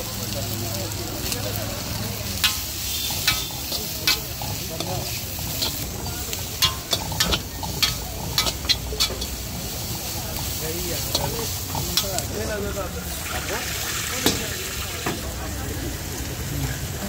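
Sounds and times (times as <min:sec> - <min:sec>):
food sizzling: 0:00.0 - 0:17.0
metal spatula clanking on a wok: 0:02.3 - 0:12.6.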